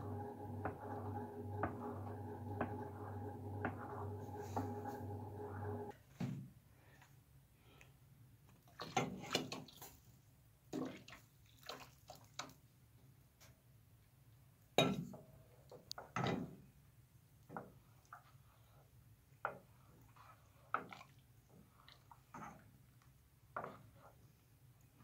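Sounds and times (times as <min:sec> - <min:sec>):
liquid splashing: 0:10.8 - 0:12.6.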